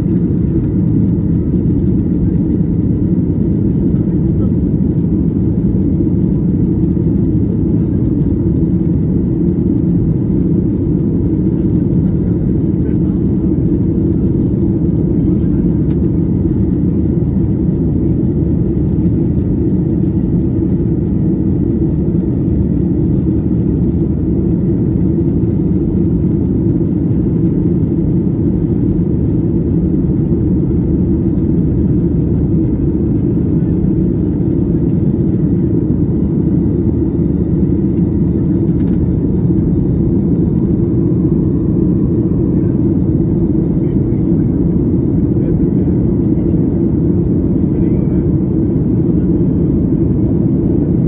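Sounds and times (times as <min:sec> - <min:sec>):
airplane cabin engine rumble: 0:00.0 - 0:51.0.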